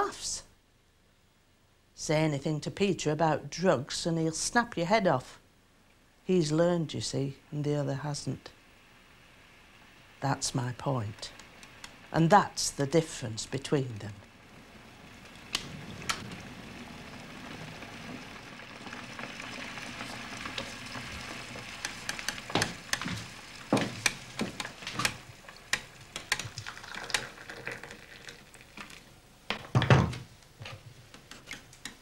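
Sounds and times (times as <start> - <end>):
steady hiss: 0.0 - 32.0
hot water pouring into a cup: 14.3 - 29.1.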